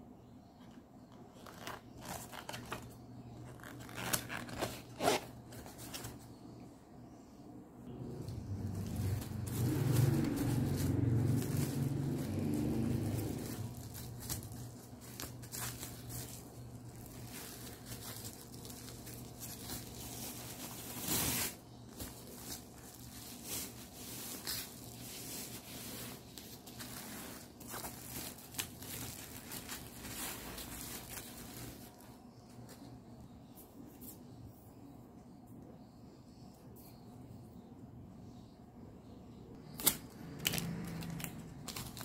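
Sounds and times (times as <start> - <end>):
bubble wrap crinkling: 1.3 - 6.3, 8.0 - 32.8, 39.6 - 42.0
bubble wrap ripping: 1.4 - 6.1, 8.4 - 32.1, 39.6 - 42.0.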